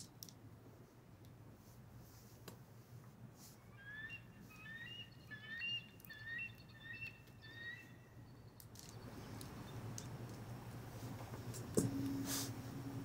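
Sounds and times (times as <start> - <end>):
whistled bird chirps: 3.7 - 9.0.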